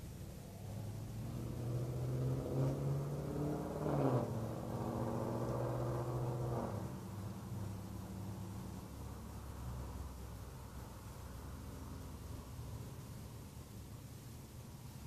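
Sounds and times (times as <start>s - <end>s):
vehicle driving past: 0.4s - 10.4s.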